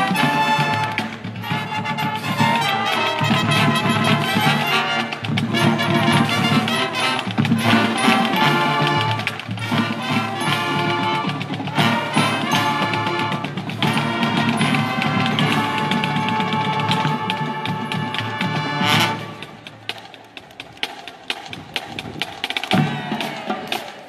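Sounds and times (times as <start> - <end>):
marching band playing: 0.0 - 24.0.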